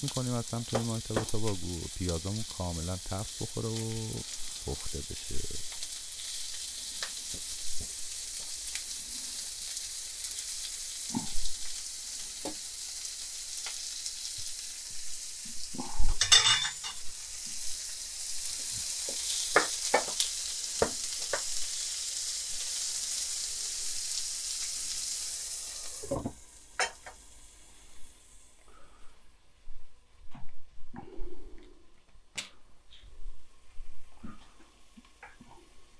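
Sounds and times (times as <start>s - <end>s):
meat sizzling in a frying pan: 0.0s - 28.6s.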